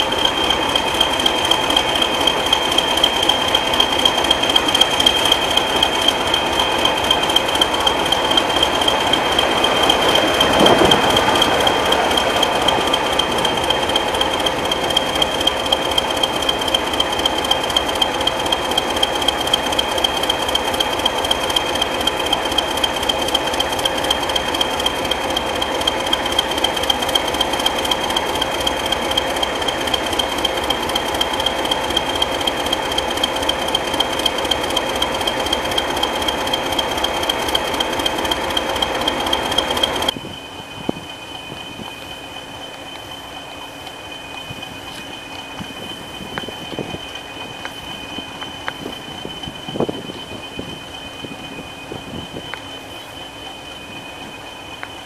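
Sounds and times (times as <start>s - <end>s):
diesel locomotive engine idling: 0.0s - 55.0s
high-pitched whine: 0.0s - 55.0s.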